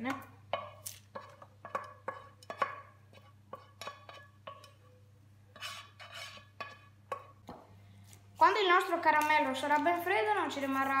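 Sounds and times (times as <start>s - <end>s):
spoon scraping a pan: 0.5s - 7.4s.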